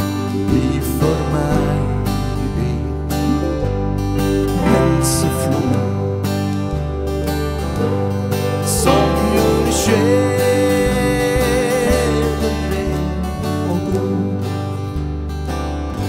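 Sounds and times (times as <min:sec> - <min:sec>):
acoustic guitar: 0:00.0 - 0:16.0
electric bass: 0:00.0 - 0:16.0
keyboards: 0:00.0 - 0:16.0.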